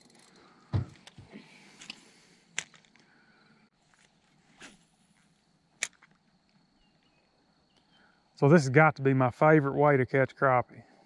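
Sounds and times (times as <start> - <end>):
dull thump: 0.7 - 1.4.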